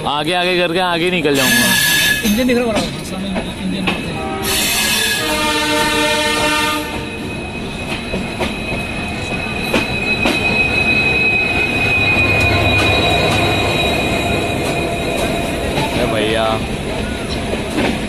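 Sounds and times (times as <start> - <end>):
train running rumble: 0.0 - 18.0
high wheel squeal: 1.2 - 2.9, 4.0 - 17.4
locomotive horn: 4.2 - 7.2.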